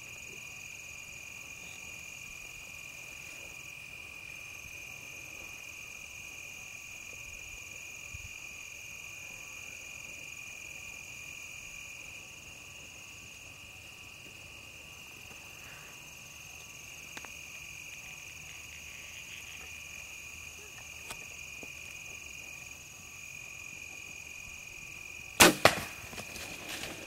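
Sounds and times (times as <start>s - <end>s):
insects trilling: 0.0s - 27.0s
bow shot crack: 25.4s - 27.0s.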